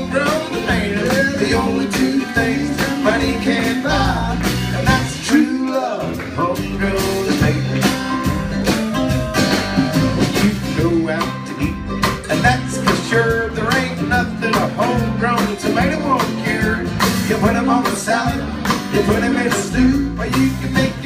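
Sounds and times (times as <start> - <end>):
melodic lead instrument: 0.0 - 20.8
acoustic guitar: 0.0 - 21.0
person singing: 0.0 - 21.0
upright bass: 0.0 - 21.0.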